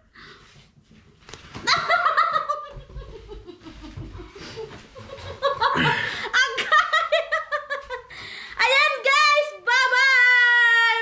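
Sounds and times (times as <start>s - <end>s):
laughter in sliding pulses: 1.7s - 8.1s.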